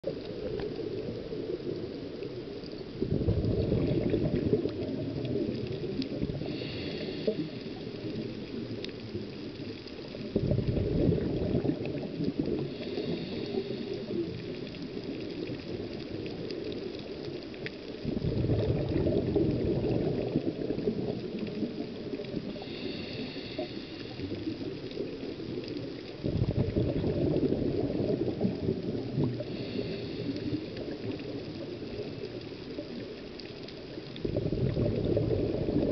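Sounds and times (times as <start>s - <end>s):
gurgling rush of bubbles: 0.0s - 35.9s
regulator inhalation hiss: 6.4s - 8.0s, 12.7s - 14.2s, 22.5s - 24.6s, 29.4s - 30.9s.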